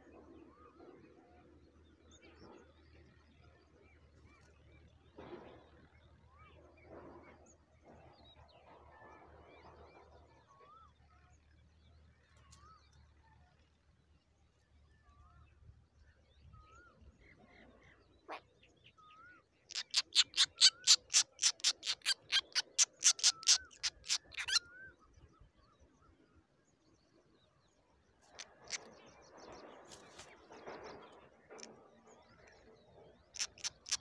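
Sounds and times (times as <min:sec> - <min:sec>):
nestlings harsh begging calls: 0:19.7 - 0:24.7, 0:28.4 - 0:28.9, 0:33.3 - 0:34.0.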